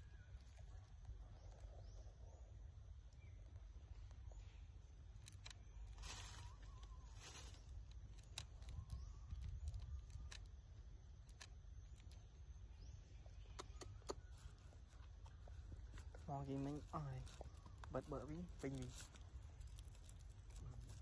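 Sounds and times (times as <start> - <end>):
soft rustles: 5.2 - 8.8, 14.3 - 21.0.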